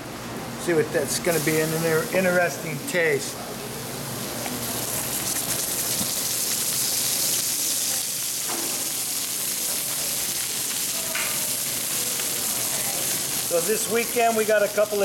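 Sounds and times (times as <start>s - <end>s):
fish sizzling in oil: 4.2s - 15.0s.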